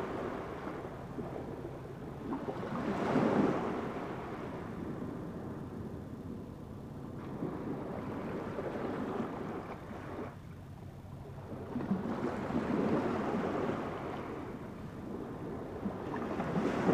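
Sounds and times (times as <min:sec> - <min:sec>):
ocean surf on rocky shore: 0:02.5 - 0:04.8.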